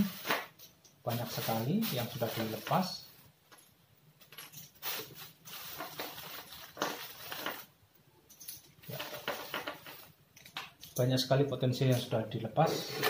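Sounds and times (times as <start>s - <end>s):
plastic bag crinkling: 0.0s - 3.1s, 4.8s - 7.8s, 8.8s - 10.1s.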